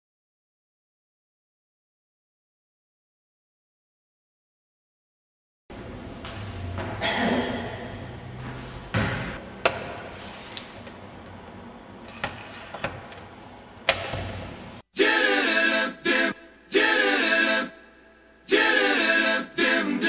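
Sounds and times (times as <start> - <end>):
vocal music with singing: 14.9 - 20.0.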